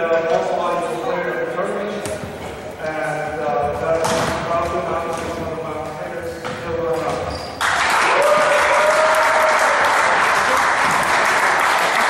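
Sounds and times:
spectators applauding: 0:07.6 - 0:12.0.

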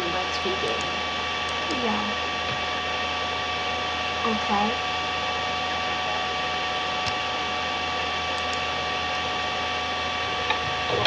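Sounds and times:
high-pitched electrical whine: 0:00.0 - 0:11.0.

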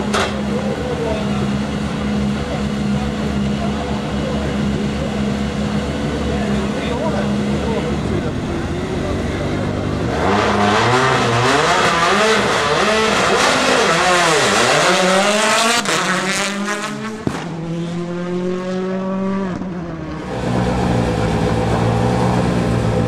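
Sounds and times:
rally car engine revving: 0:00.0 - 0:23.0
rally car idling: 0:00.0 - 0:23.0
rally car passing at speed: 0:09.4 - 0:23.0.

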